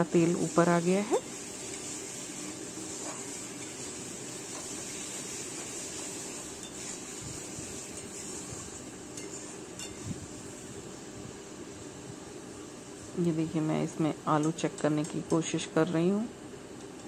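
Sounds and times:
metal spatula scraping a pan: 0:00.3 - 0:07.1.

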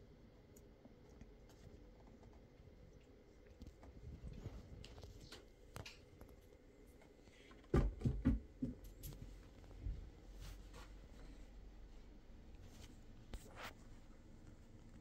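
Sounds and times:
kitten paws clicking and pattering: 0:00.6 - 0:07.1.

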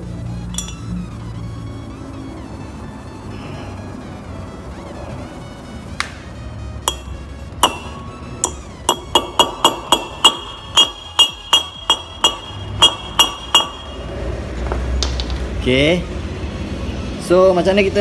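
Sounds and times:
hammer striking metal: 0:00.5 - 0:00.9, 0:06.8 - 0:14.2.

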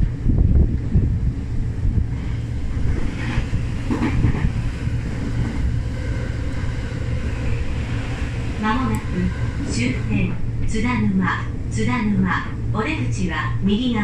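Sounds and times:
train wheels rumbling on rails: 0:00.0 - 0:14.0.

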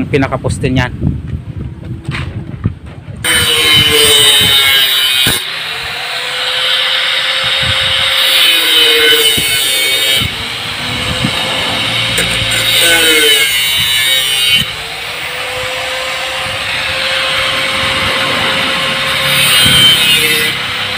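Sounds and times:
angle grinder cutting metal: 0:03.2 - 0:20.9.

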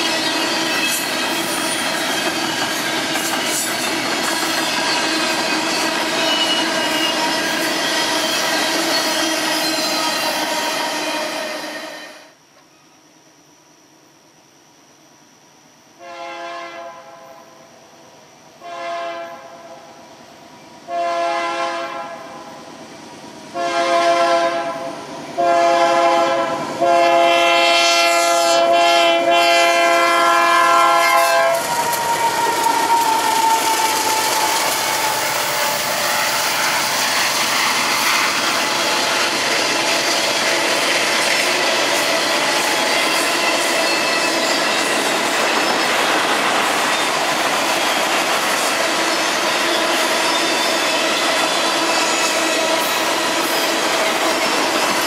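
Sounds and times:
train wheels on rail: 0:00.0 - 0:12.8, 0:20.0 - 0:55.0
locomotive air horn: 0:09.0 - 0:12.3, 0:16.0 - 0:17.4, 0:18.6 - 0:19.8, 0:20.9 - 0:22.4, 0:23.6 - 0:36.7.

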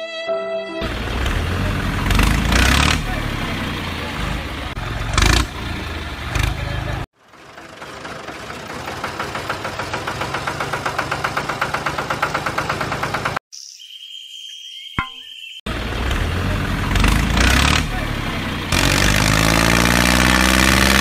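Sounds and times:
tractor engine chugging: 0:00.8 - 0:13.4.

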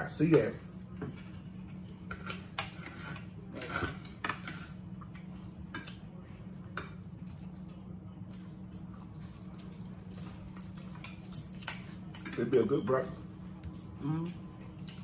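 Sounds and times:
steady low hum: 0:00.0 - 0:15.0
cutlery scraping on plates: 0:01.0 - 0:04.8.

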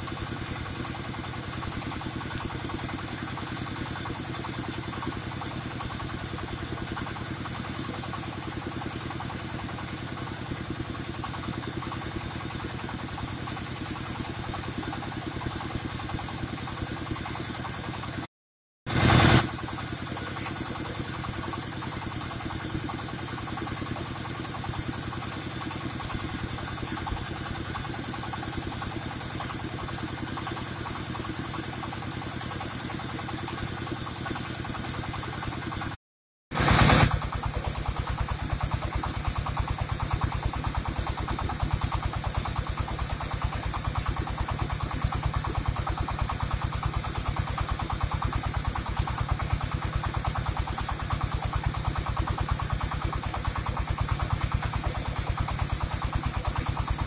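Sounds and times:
rice milling machine drone: 0:00.0 - 0:18.3, 0:18.9 - 0:57.0.

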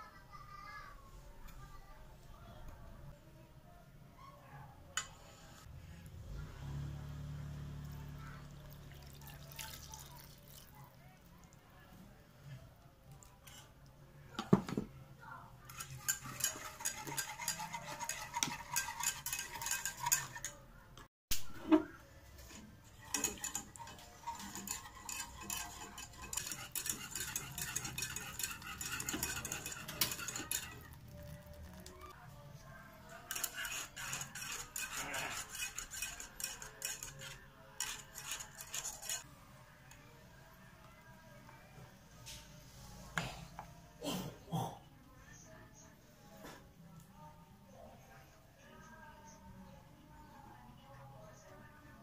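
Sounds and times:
whisk clinking and scraping in pan: 0:15.7 - 0:20.6, 0:22.4 - 0:32.2, 0:33.1 - 0:39.3.

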